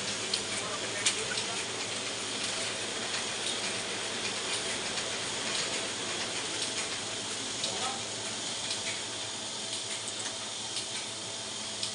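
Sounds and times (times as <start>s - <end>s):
printing press clattering: 0.0s - 11.2s.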